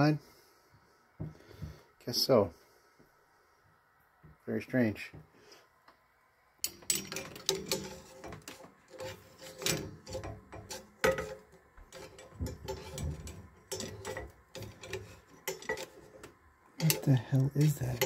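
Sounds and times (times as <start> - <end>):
screwdriver scraping inside pipe: 6.7 - 18.0.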